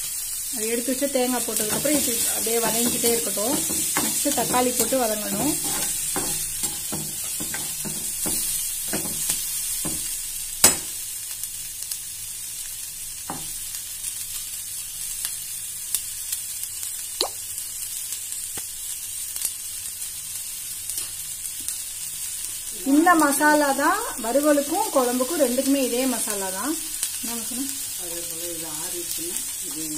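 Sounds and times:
onions sizzling in hot oil: 0.0 - 29.9
spatula scraping and tapping pan: 1.5 - 10.9.

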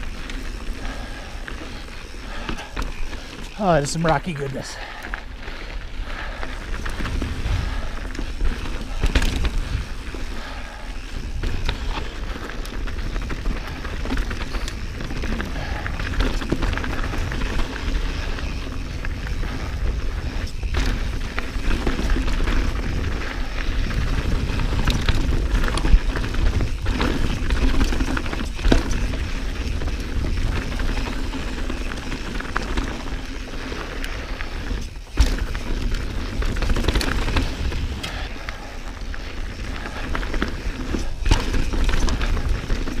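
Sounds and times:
wind rumbling on microphone: 0.0 - 43.0
bike knocks and rattles on rocks: 8.2 - 9.9, 11.4 - 33.8, 34.8 - 38.2, 39.9 - 43.0.

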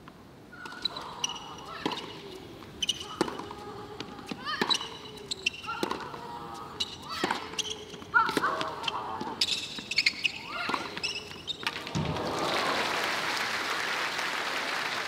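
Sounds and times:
tennis ball struck by racket: 5.7 - 6.2, 7.1 - 7.6
crowd applause: 12.0 - 15.0.

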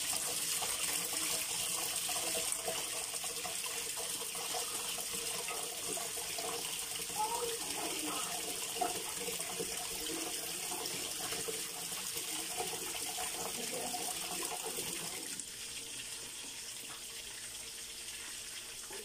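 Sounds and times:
tap water running into sink: 0.0 - 19.0.

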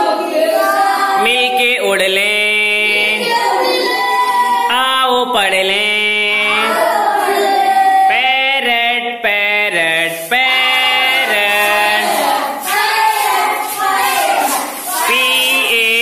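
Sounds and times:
children singing in chorus: 0.0 - 1.7, 2.3 - 5.2, 6.2 - 8.4, 10.2 - 16.0.

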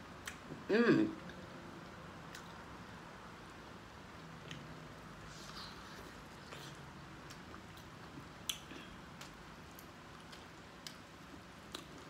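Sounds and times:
person chewing corn: 5.3 - 12.0.

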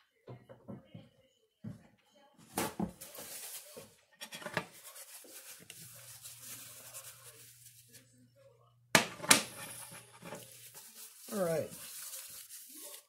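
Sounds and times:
cookware clicks and knocks: 9.0 - 10.4.

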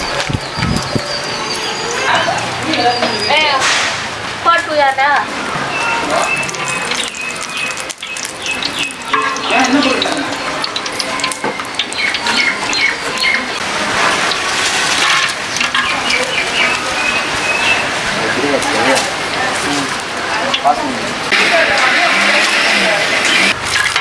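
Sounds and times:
oil sizzling in a pot: 5.7 - 24.0
spices dropped into hot oil: 6.4 - 12.2.

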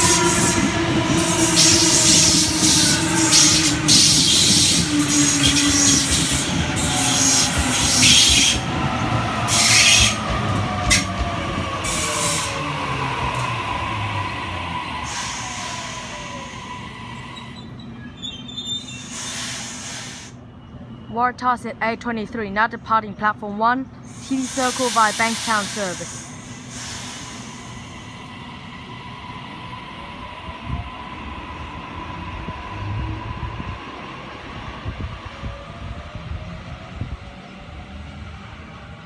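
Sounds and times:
short hissing bursts: 19.1 - 20.4, 24.1 - 27.8.

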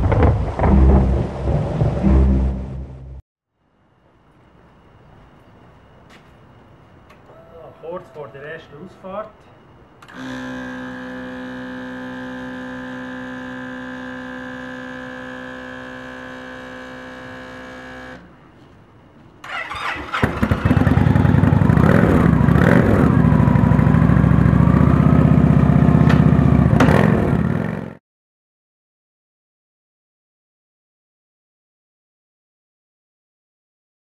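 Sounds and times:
motorcycle engine starting and revving: 0.0 - 3.1, 10.1 - 18.3, 19.4 - 28.0.

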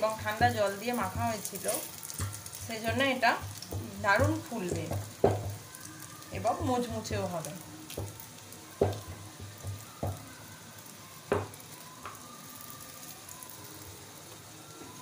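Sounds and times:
flatbread sizzling in oil: 0.0 - 15.0
metal spatula knocking on pan: 2.2 - 5.7, 8.8 - 10.2, 11.3 - 11.6.

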